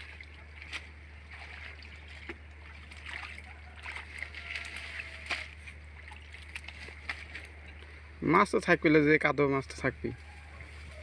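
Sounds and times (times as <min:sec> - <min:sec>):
muddy water splashing: 0:00.0 - 0:08.5.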